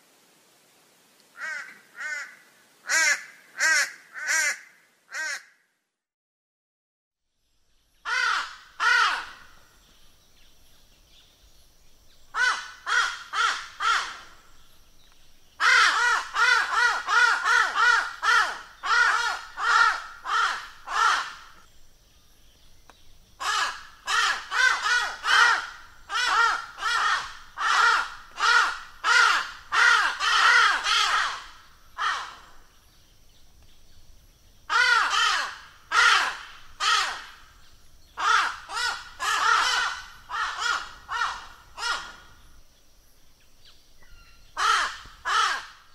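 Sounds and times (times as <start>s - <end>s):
crow cawing: 1.4s - 5.6s, 8.1s - 9.6s, 12.4s - 14.3s, 15.6s - 21.6s, 23.4s - 32.6s, 34.7s - 37.5s, 38.2s - 42.4s, 44.6s - 45.9s.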